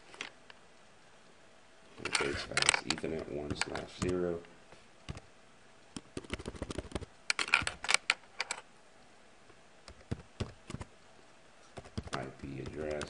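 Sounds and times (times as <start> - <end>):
typing on computer keyboard: 5.1 - 5.3, 6.0 - 8.6, 9.9 - 10.9, 11.8 - 13.0.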